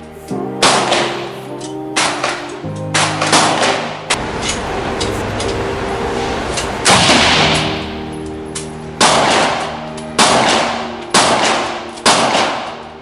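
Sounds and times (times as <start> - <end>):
handgun shots echoing indoors: 2.9 - 4.6, 6.8 - 7.9, 8.6 - 13.0.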